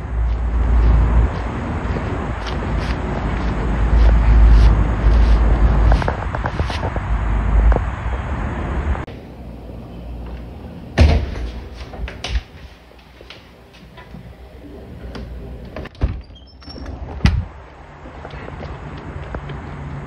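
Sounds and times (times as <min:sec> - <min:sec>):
wind rumble on microphone: 0:00.0 - 0:09.1
door knocks and thuds: 0:17.1 - 0:17.5.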